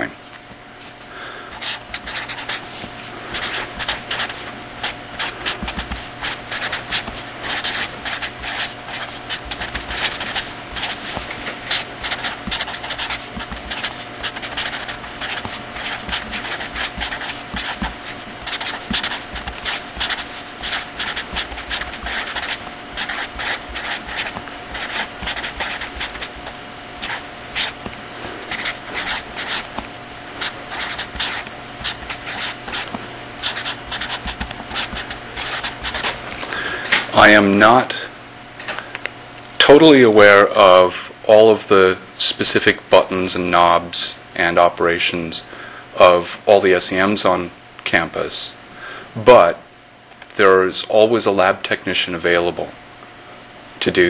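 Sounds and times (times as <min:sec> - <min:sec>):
electrical hum: 0:00.0 - 0:54.0
pen scratching handwriting: 0:01.5 - 0:02.7, 0:03.3 - 0:36.2.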